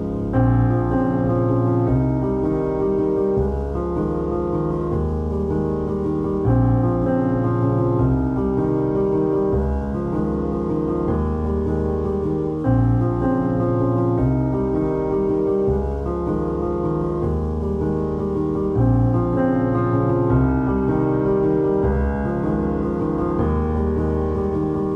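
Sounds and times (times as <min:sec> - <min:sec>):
piano chords: 0:00.0 - 0:24.9.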